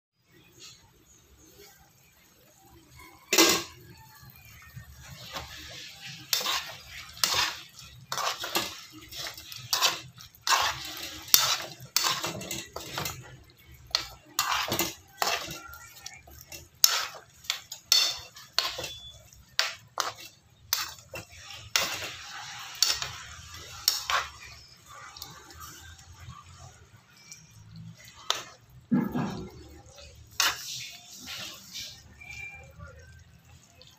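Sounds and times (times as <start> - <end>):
metal spoon clanking in pot: 3.3 - 3.8, 5.0 - 26.3, 27.2 - 32.5.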